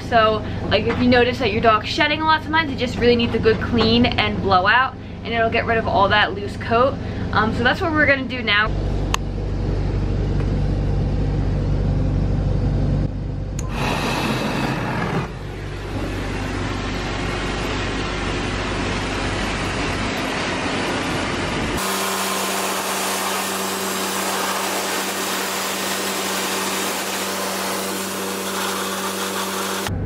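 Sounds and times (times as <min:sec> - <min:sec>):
blow dryer blasting air: 0:13.6 - 0:30.0.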